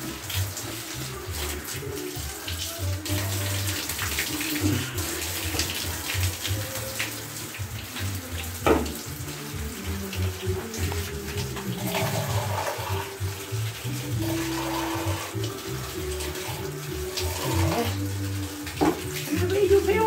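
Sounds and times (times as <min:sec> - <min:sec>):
water running from faucet: 0:00.0 - 0:20.0
water splashing: 0:00.0 - 0:20.0.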